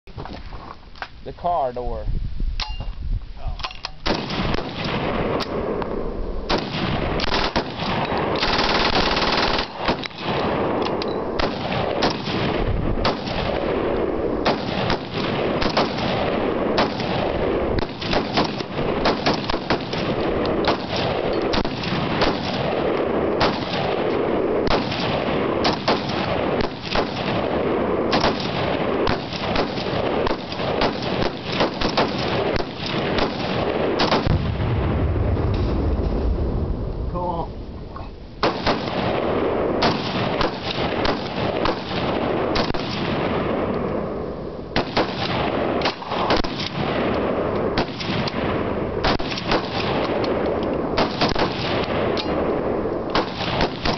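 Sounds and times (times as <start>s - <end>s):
machine guns firing: 6.5s - 10.8s, 11.4s - 34.5s, 38.4s - 43.5s, 44.8s - 50.3s, 51.0s - 52.4s, 53.1s - 53.9s.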